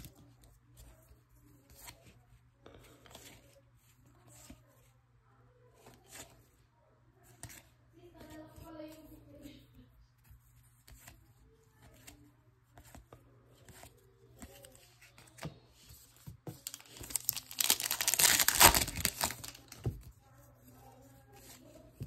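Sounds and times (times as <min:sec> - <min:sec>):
wrapper being torn open: 0:16.6 - 0:19.8.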